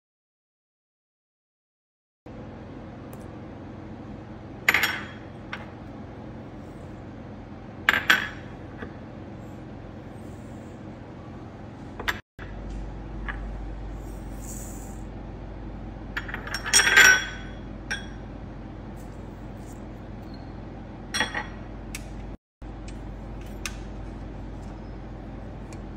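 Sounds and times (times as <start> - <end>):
faint hum: 2.3 - 25.9.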